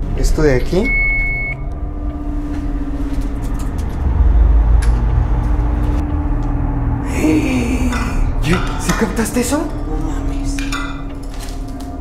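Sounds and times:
low rumble: 0.0 - 11.2
high beep: 0.8 - 1.7
held hum: 0.9 - 8.8.

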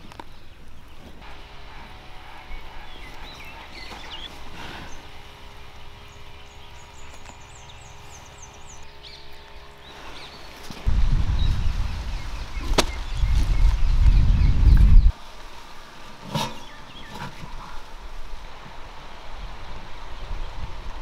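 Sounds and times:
small birds chirping: 0.0 - 15.2, 16.4 - 18.0
low rumble: 10.8 - 15.2.

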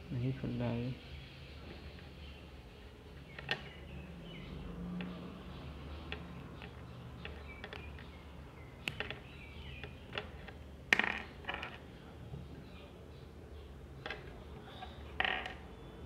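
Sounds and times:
small plastic clicks: 8.8 - 11.8.

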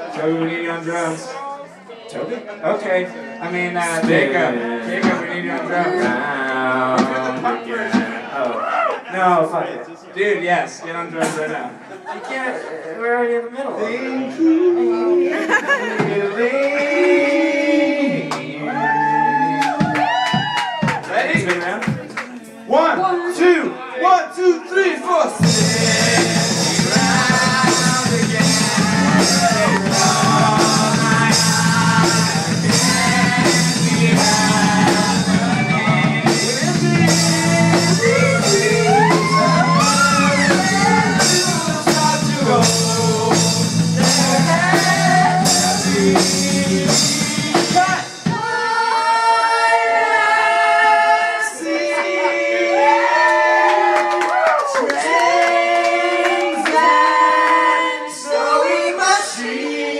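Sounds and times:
voices singing: 0.0 - 8.6, 13.8 - 20.5, 24.8 - 59.9
live rock band playing: 25.4 - 48.5.

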